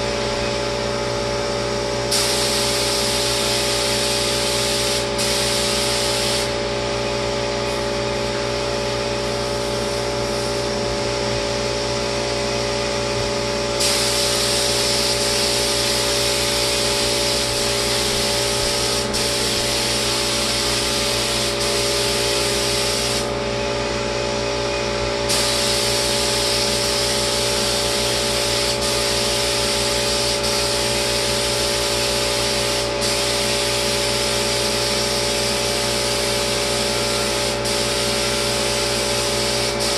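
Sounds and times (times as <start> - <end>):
spray gun hissing: 2.1 - 6.6, 13.8 - 23.3, 25.3 - 39.9.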